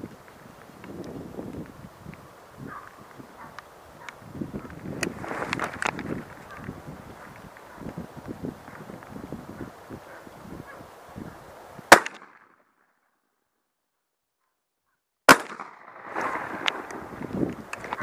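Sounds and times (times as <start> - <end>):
shotgun shots: 11.9 - 12.5, 15.3 - 16.8.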